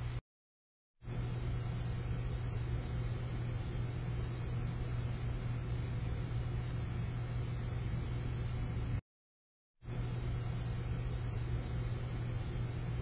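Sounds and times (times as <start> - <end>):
steady low hum: 0.0 - 0.2, 1.0 - 9.0, 9.8 - 13.0.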